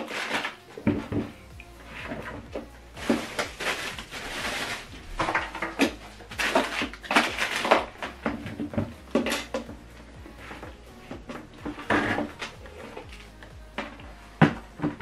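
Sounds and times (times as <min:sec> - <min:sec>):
plastic wrapping crinkling: 0:00.0 - 0:01.0, 0:02.0 - 0:09.6.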